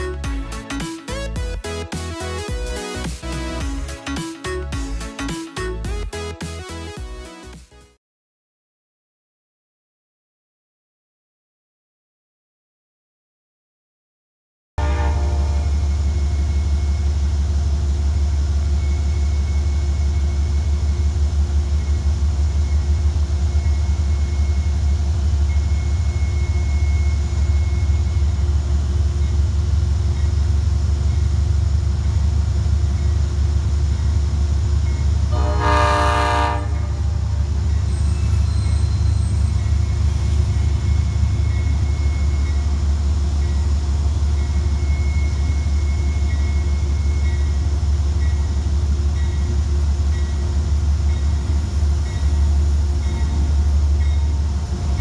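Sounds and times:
low rumble of trains: 0.0 - 6.3, 14.8 - 55.0
train horn blast: 14.8 - 15.8, 35.3 - 37.4.

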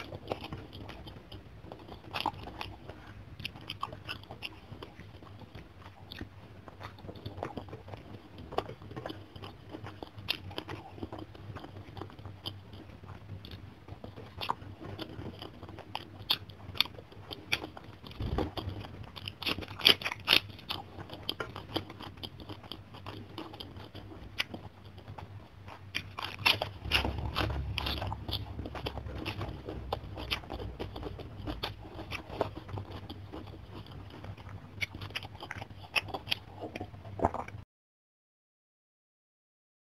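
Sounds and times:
chewing and mouth sounds: 0.0 - 37.6
crisp crunching of cabbage leaf: 14.3 - 37.6.

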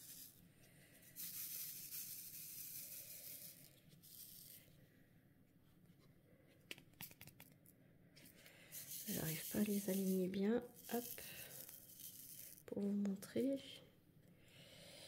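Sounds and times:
beads rattling in plastic tray: 1.1 - 4.6, 8.7 - 12.7.

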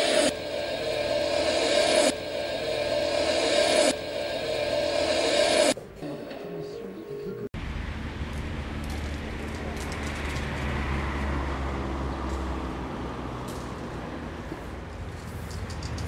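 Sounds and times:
road traffic rumble: 7.6 - 16.0
vehicle passing by: 7.6 - 16.0.

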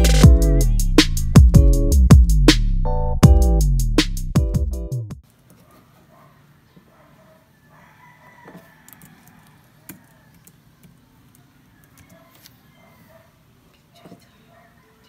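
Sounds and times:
distant rooster crowing: 7.0 - 13.3, 14.2 - 15.0.

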